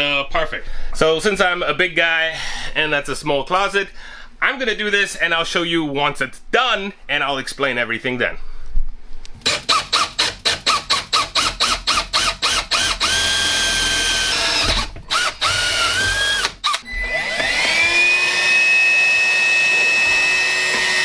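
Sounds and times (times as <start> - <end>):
cordless drill whining: 9.4 - 21.0
stick vacuum motor whine: 9.4 - 21.0.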